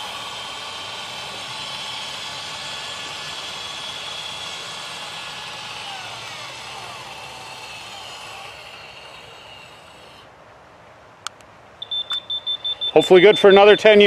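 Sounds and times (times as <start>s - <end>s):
gate opener motors whining: 0.0s - 10.2s.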